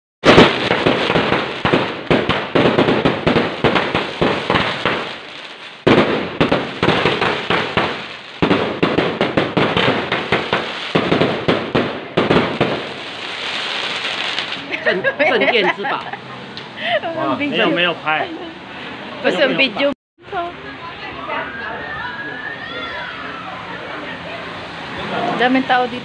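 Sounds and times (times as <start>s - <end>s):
fireworks bangs and crackling: 0.2s - 14.8s.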